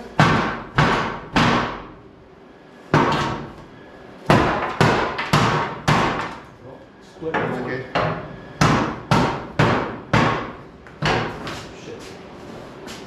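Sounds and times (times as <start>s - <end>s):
hammer striking wooden boards: 0.2s - 1.9s, 2.9s - 3.5s, 4.3s - 6.4s, 7.3s - 11.5s.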